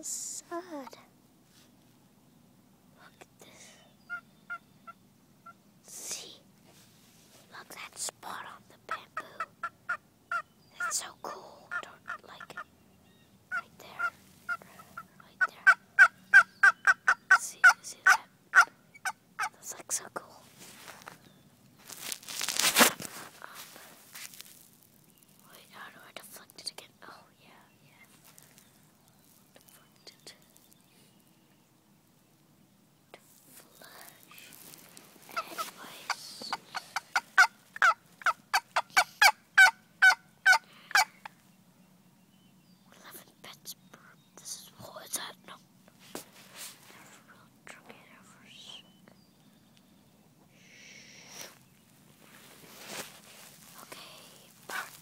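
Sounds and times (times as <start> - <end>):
turkeys calling: 4.1 - 5.6, 9.4 - 10.9, 13.5 - 19.5, 34.6 - 41.4.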